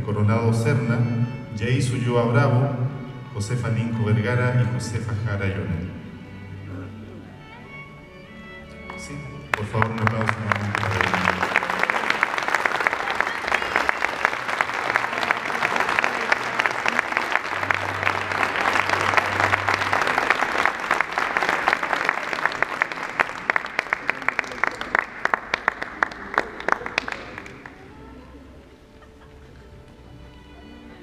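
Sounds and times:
audience applauding: 0:08.8 - 0:28.3.

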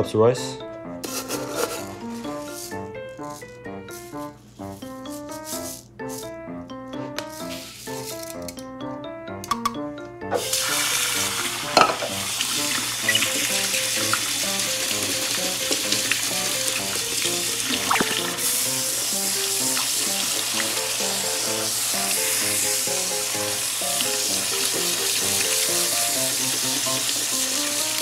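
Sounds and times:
light background music: 0:00.0 - 0:28.0
tap water running onto rice: 0:10.4 - 0:28.0.

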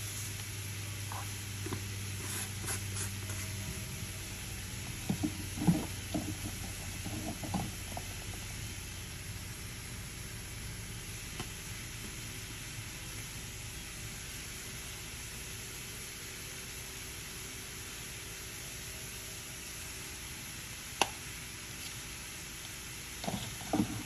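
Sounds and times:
meat sizzling in a skillet: 0:08.4 - 0:23.2.

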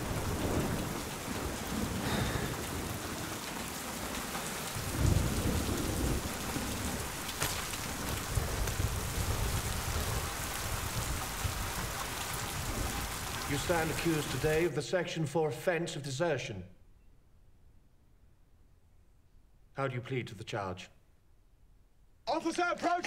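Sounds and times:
heavy rain falling: 0:00.0 - 0:14.7
low rumbles: 0:04.7 - 0:11.6.

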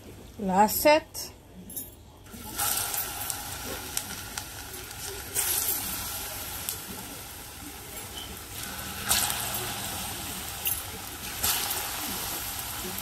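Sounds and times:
food sizzling and popping in oil: 0:02.3 - 0:13.0.

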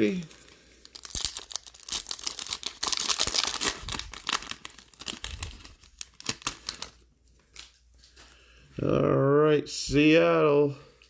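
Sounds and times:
foil wrapper tearing and crinkling: 0:00.0 - 0:07.7.

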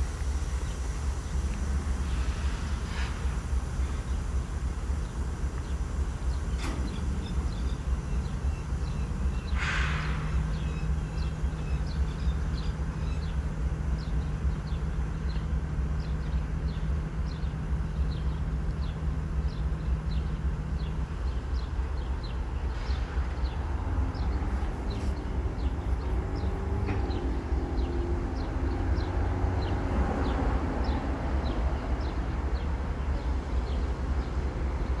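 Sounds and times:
short hiss: 0:00.0 - 0:05.5, 0:09.5 - 0:10.6
freight train low rumble: 0:00.0 - 0:35.0
small birds chirping: 0:05.0 - 0:35.0.

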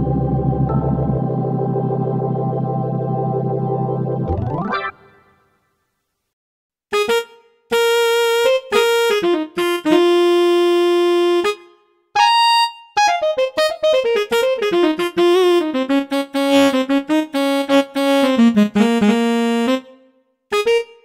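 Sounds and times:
synthesized tenor saxophone notes: 0:06.9 - 0:21.0.

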